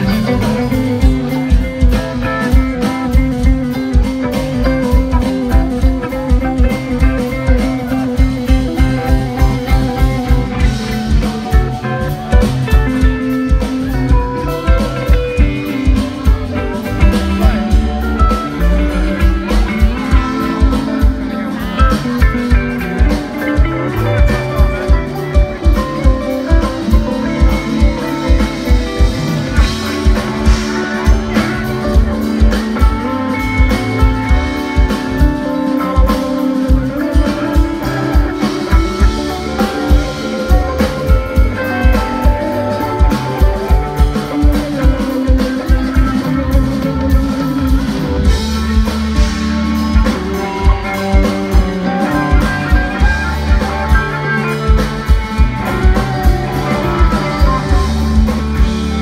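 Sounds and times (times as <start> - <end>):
funk band playing: 0.0 - 59.0.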